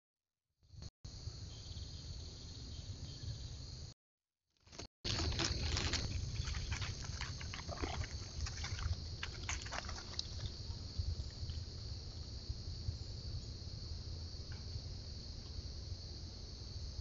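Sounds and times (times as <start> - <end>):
high-pitched insect chorus: 1.1 - 3.9, 4.7 - 17.0
rustling in leaf litter: 4.7 - 10.5.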